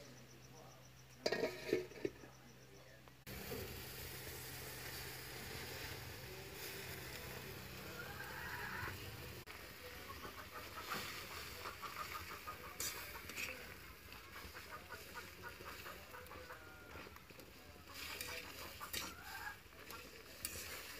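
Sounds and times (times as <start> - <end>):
chickens clucking: 4.8 - 20.9.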